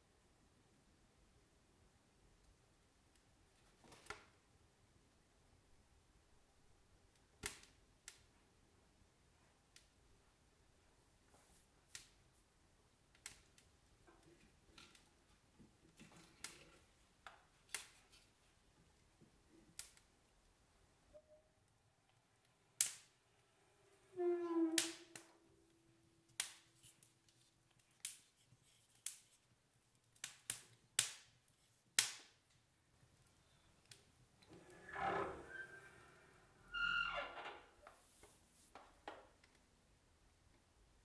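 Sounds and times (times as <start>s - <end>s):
logs crackling in wood stove: 7.1s - 8.4s, 12.9s - 20.6s, 22.1s - 25.4s, 26.3s - 35.8s.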